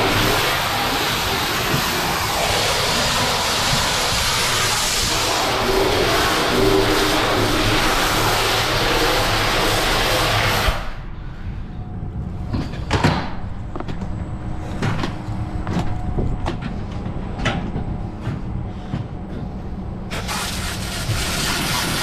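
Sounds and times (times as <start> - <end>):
water jet spraying hiss: 0.0 - 10.9, 20.1 - 22.0.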